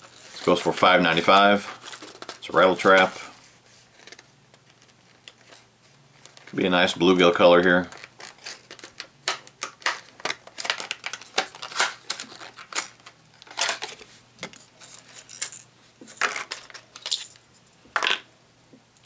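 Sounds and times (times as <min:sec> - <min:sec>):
plastic packaging clicking and snapping: 0:07.9 - 0:14.6.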